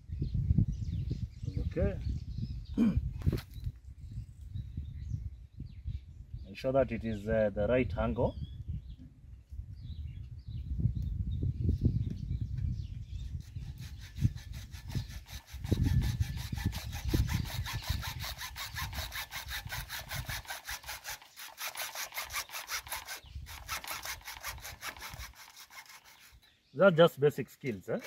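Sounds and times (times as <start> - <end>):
hacksaw cutting plastic pipe: 13.4 - 26.4.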